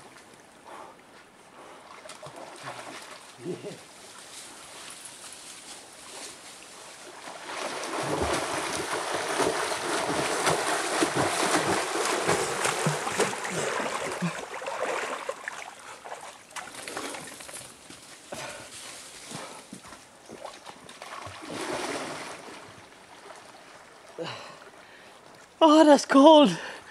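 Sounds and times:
swimming strokes splashing: 6.9 - 17.6.

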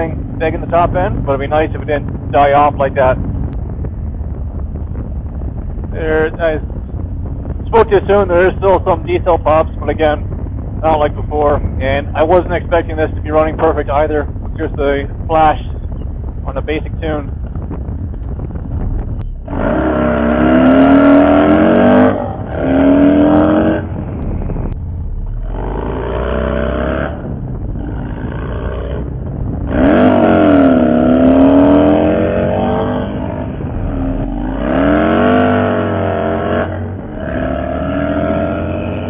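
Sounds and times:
motorcycle engine revving: 0.0 - 39.0.

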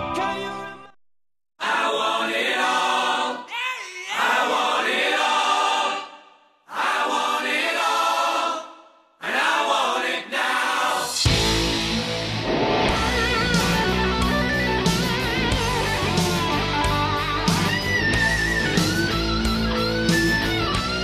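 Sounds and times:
choir singing: 1.6 - 11.7
electric guitar music: 11.3 - 21.0.

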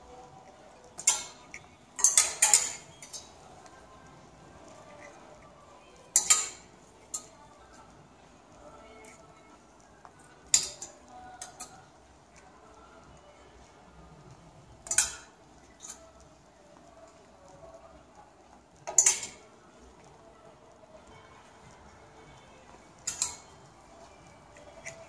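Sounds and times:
plastic hangers clacking on metal rail: 1.0 - 3.3.

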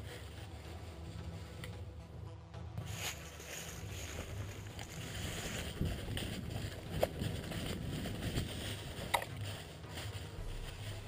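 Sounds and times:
footsteps crunching dry leaves: 0.0 - 1.6, 2.8 - 11.0
gear handling noise: 3.0 - 11.0.

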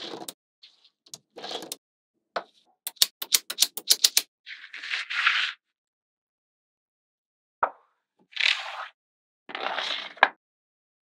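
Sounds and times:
magnet panel rustling: 2.9 - 4.2
magnetic balls clicking together: 2.9 - 4.3.

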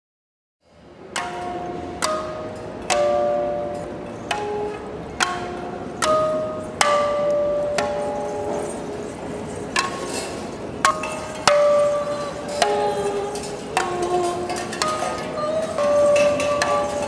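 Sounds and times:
struck metal chimes ringing: 1.1 - 17.0.

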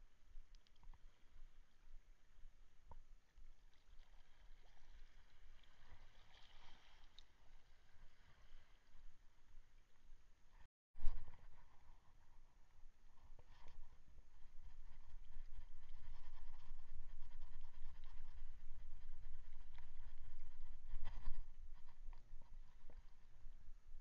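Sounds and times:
soft watery hiss: 0.1 - 23.8
light clicks of fishing rod: 0.3 - 1.2, 5.6 - 7.3
water lapping against kayak: 3.4 - 9.7.

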